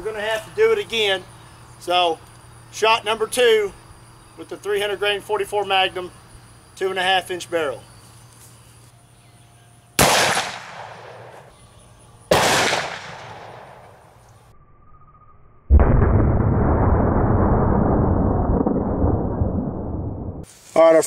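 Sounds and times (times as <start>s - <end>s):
revolver gunshot with echo: 10.0s - 11.5s, 12.3s - 14.1s.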